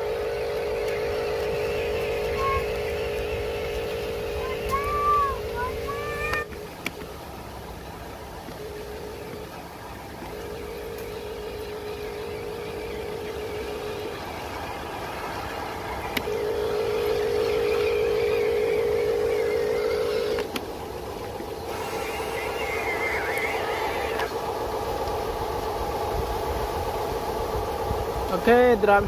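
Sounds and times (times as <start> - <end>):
toy truck motor whining: 0.0 - 6.6, 21.7 - 24.4.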